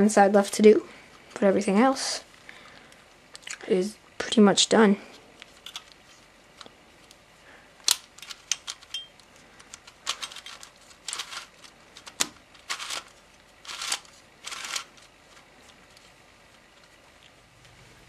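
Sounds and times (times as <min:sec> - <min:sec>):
plastic puzzle pieces clicking: 0:07.8 - 0:15.8
plastic pieces scraping: 0:07.8 - 0:17.4.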